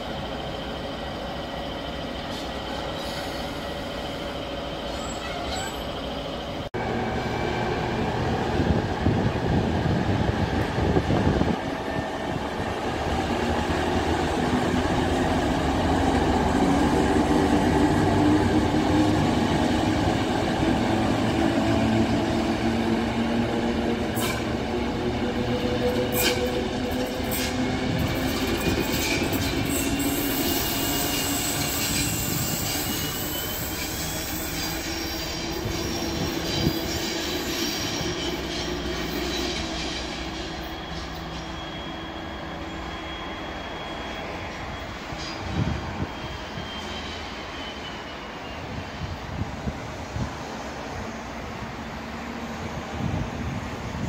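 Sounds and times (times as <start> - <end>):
diesel locomotive engine drone: 0.0 - 54.0
wheel squeal: 4.8 - 6.0, 28.3 - 49.0.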